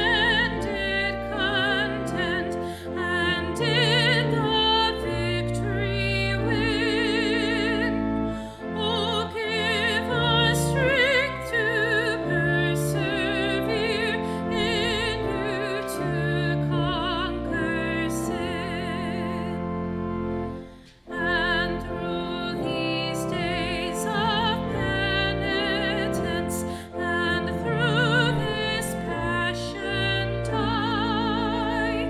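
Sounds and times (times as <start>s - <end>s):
woman singing operatically: 0.0s - 8.0s, 8.7s - 19.6s, 21.1s - 32.0s
church organ chords: 0.0s - 32.0s.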